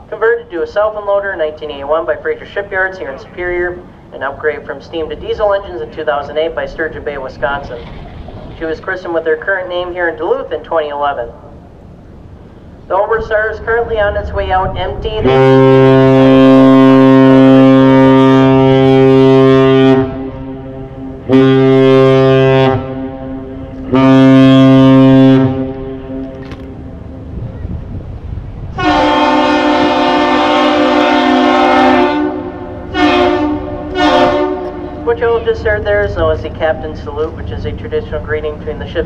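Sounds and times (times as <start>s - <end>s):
ship horn blasts: 8.6s - 39.0s
higher-pitched bridge horn: 13.4s - 27.4s, 28.7s - 36.6s.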